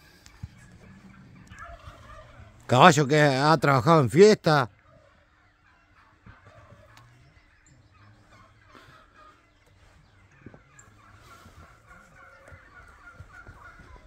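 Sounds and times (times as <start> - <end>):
horse hooves on dirt: 0.0 - 2.8, 9.0 - 14.0
faint birds calling: 0.0 - 14.0.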